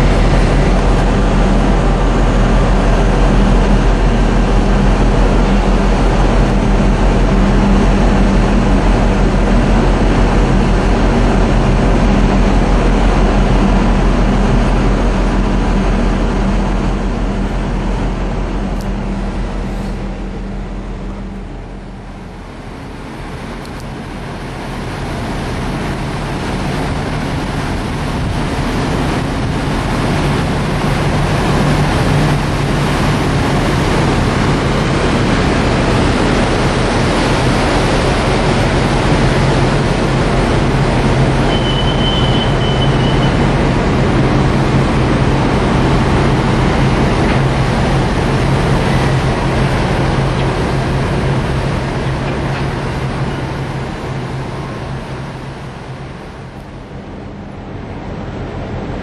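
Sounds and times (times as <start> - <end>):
diesel engine drone: 0.0 - 59.0
rushing noise: 0.0 - 59.0
brief high whistle: 41.5 - 43.4.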